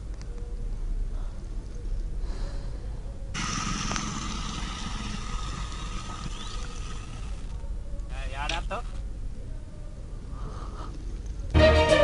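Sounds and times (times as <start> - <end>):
thin steady hum: 0.0 - 8.4
motorcycle engines running: 3.4 - 7.7.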